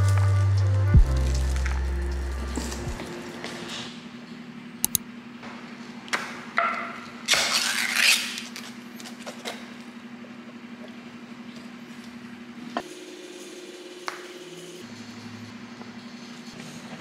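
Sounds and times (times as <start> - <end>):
pull-tab lid clicks: 4.8 - 5.0.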